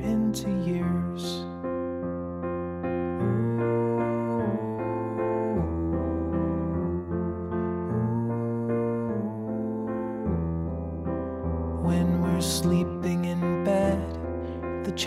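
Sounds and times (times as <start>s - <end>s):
slow keyboard music: 0.0s - 15.0s.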